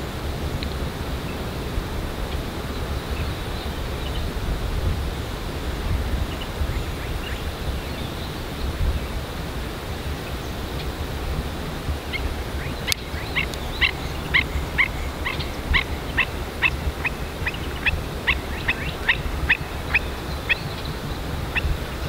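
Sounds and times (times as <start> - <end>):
wind rumble on microphone: 0.0 - 22.0
bird calling with high notes: 12.1 - 21.7.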